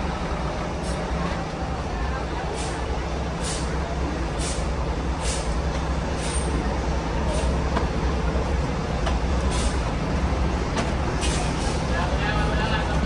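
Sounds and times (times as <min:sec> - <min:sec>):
diesel bus rumble: 0:00.0 - 0:13.0
short air hisses: 0:03.4 - 0:03.8, 0:04.4 - 0:05.6, 0:06.2 - 0:06.6, 0:09.5 - 0:09.9.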